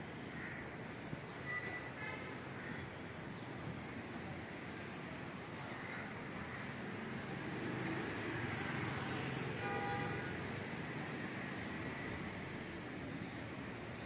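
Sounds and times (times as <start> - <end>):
hum of passing cars: 4.0 - 14.0.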